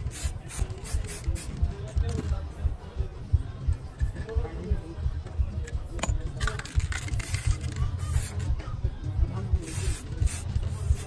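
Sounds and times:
aerosol spray can hissing: 0.0 - 1.5, 7.0 - 8.5, 9.6 - 11.0.

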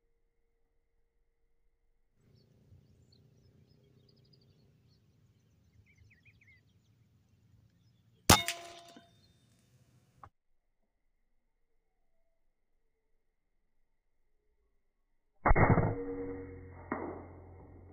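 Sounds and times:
low outdoor background: 0.0 - 10.3
faint bird chirps: 2.3 - 8.3
air rifle shot with metallic ring: 8.3 - 9.2.

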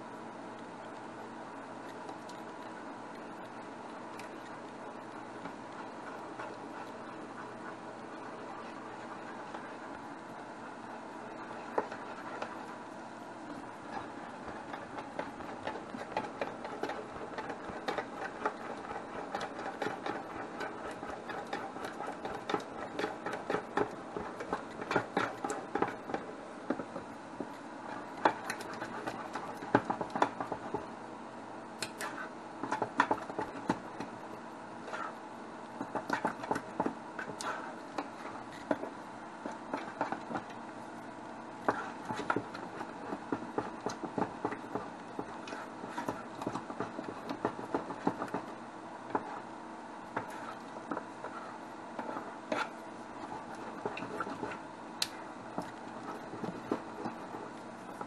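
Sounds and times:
steady hum: 0.0 - 58.0
utensil stirring batter in metal pot: 0.8 - 31.1, 31.8 - 58.0.

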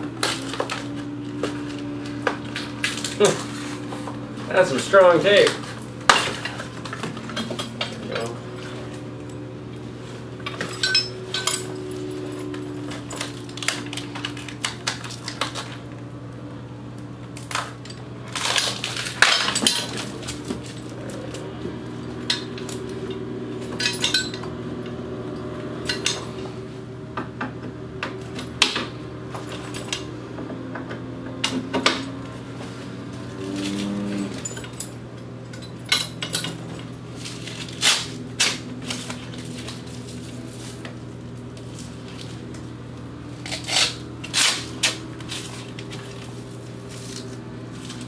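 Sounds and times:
steady low hum: 0.0 - 48.0
metal tubes clinking and knocking: 10.4 - 11.9, 22.3 - 24.6, 34.2 - 36.9.

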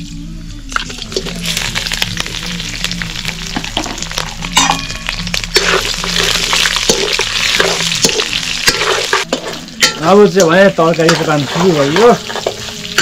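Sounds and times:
meat sizzling in hot oil: 0.7 - 13.0
metal spoon scraping pan: 5.5 - 10.2.

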